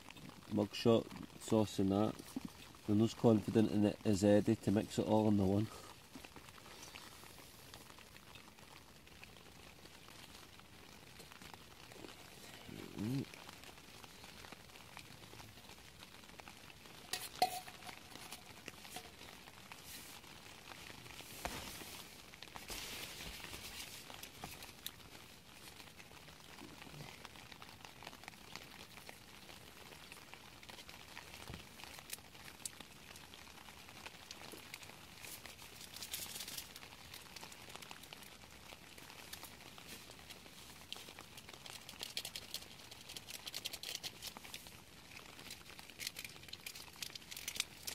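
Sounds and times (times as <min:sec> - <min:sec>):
rustling: 0:16.9 - 0:25.8
metal pot and spoon clinking: 0:17.1 - 0:18.3.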